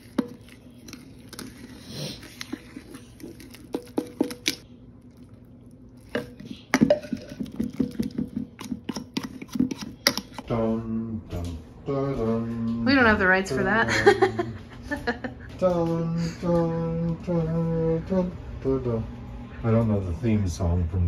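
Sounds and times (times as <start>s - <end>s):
fingers mashing wet food: 0.0s - 4.6s, 6.0s - 10.4s.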